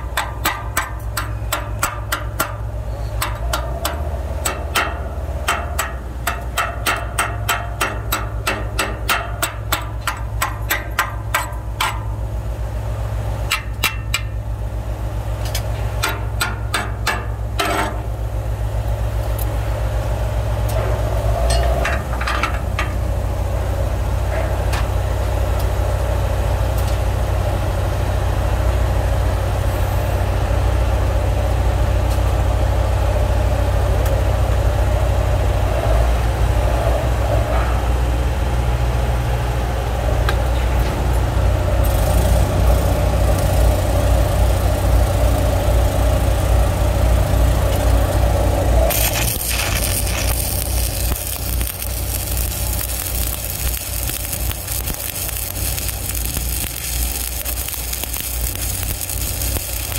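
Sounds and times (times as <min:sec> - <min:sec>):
engine droning: 0:00.0 - 0:59.9
welding arc crackling and hissing: 0:41.8 - 0:59.9.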